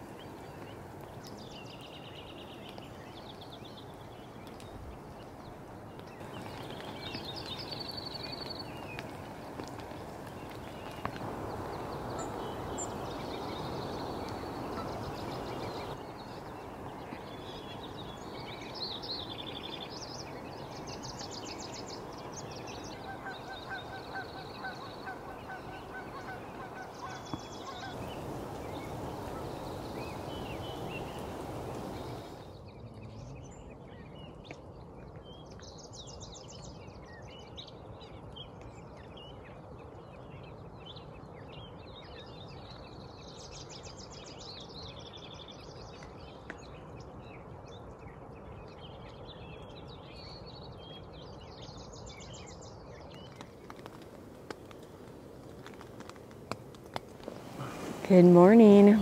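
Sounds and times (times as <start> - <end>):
small birds chirping: 0.0 - 59.0
steady outdoor hiss: 0.0 - 59.0
geese honking: 23.0 - 28.1.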